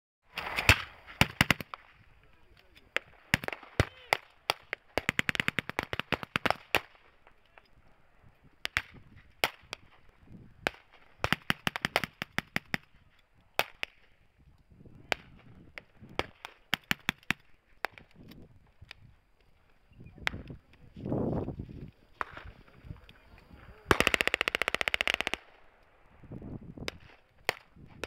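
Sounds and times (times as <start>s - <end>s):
automatic gunfire: 10.7s - 12.8s, 23.9s - 25.6s
single gunshots: 23.9s - 25.4s.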